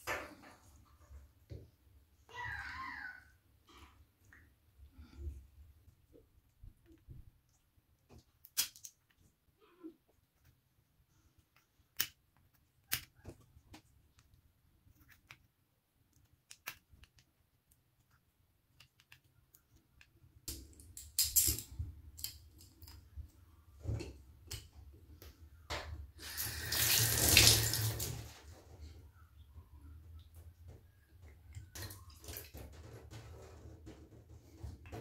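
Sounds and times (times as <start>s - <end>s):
water running into bathtub: 25.8s - 29.0s, 31.3s - 33.3s.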